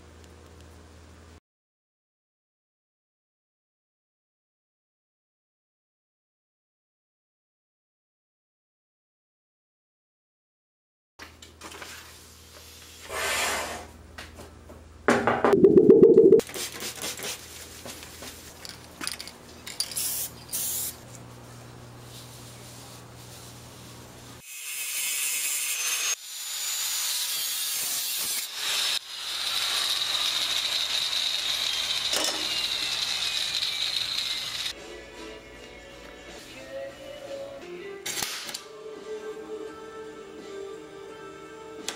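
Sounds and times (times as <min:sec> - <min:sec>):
cutting tool hissing and whining: 0:24.4 - 0:34.7.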